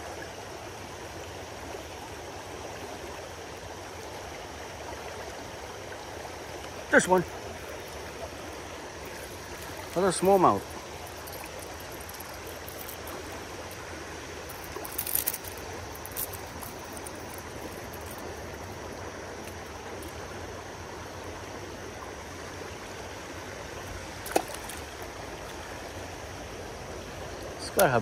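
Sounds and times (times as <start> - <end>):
creek rushing over stones: 0.0 - 28.0
sharp splashes: 24.0 - 25.6.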